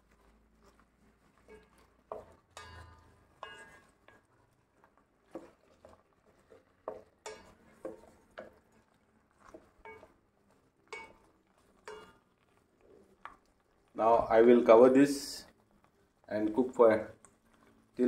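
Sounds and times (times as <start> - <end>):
spatula scraping metal pot: 0.0 - 14.0.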